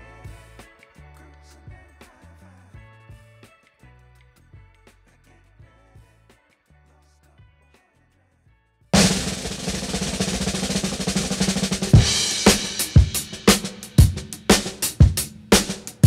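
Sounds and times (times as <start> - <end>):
drum beat music: 9.0 - 16.0.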